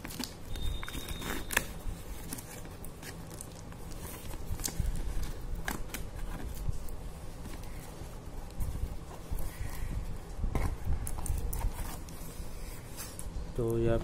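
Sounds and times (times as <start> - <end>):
scissors snipping packing tape: 0.0 - 6.6
tape and cardboard crackling: 0.0 - 13.9.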